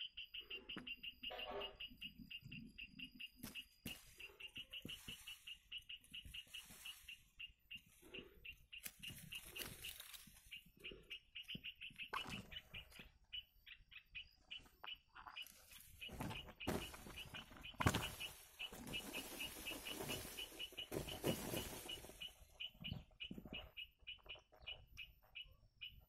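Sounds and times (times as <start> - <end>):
nestlings chirping: 0.0 - 26.0
leaves rustling: 3.4 - 10.8, 15.4 - 22.7.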